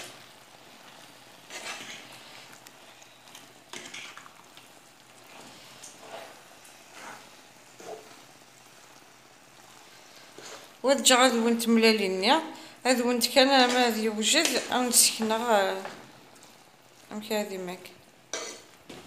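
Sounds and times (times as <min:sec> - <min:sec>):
vegetables sizzling in frying pan: 0:00.0 - 0:19.0
spoon scraping a pan: 0:01.4 - 0:08.3, 0:09.6 - 0:10.8, 0:13.6 - 0:16.6, 0:18.3 - 0:19.0.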